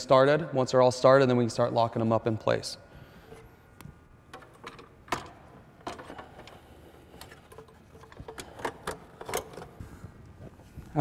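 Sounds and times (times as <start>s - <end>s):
bolts being threaded by hand: 3.2s - 11.0s.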